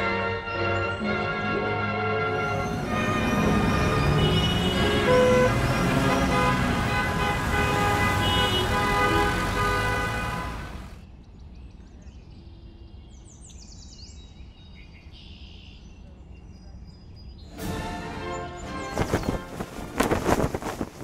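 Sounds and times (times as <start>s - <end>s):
car horns honking: 2.2s - 11.0s
city street traffic: 2.2s - 11.2s
birds chirping: 2.3s - 20.5s.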